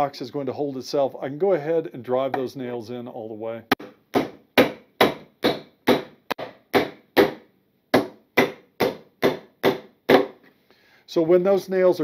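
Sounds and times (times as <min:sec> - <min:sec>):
hammer striking nails: 0:03.7 - 0:10.4.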